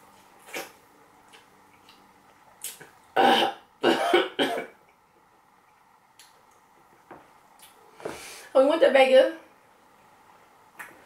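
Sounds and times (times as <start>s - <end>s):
woman coughing: 3.2s - 4.7s.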